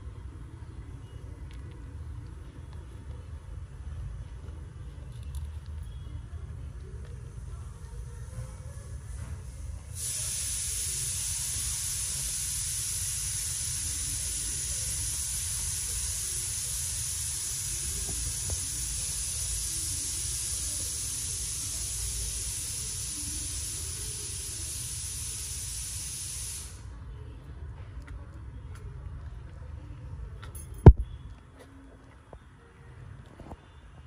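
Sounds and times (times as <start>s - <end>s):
steady hiss: 7.2s - 27.0s.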